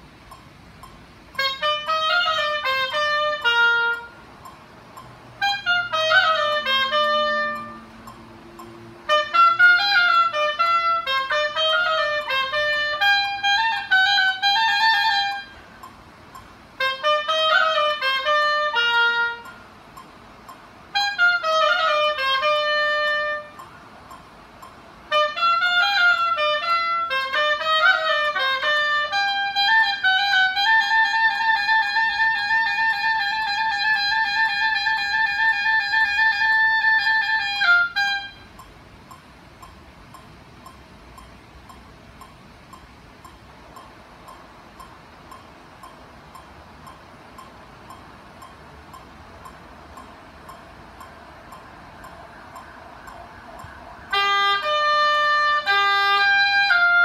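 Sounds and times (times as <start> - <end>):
solo oboe playing: 1.3 - 4.6, 5.3 - 15.9, 16.7 - 19.7, 20.9 - 23.9, 25.0 - 38.6, 51.5 - 57.0.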